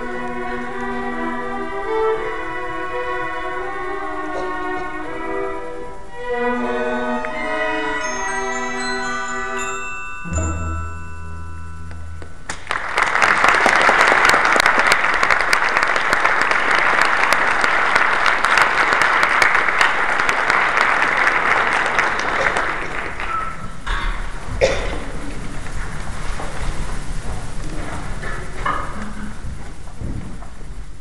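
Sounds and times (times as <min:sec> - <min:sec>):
audience applause: 0:12.5 - 0:23.8.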